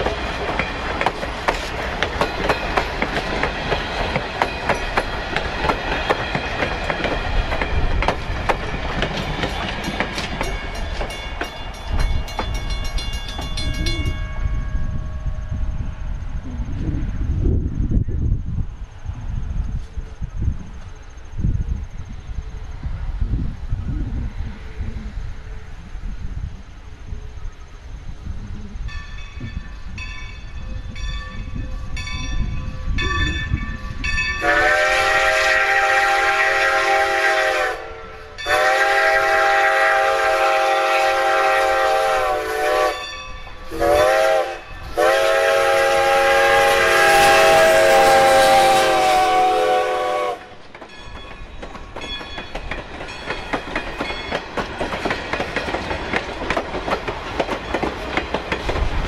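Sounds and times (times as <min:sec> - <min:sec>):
train wheels clicking over rail joints: 0:00.0 - 0:14.2, 0:50.3 - 0:59.0
steam whistle blasts: 0:34.4 - 0:50.5.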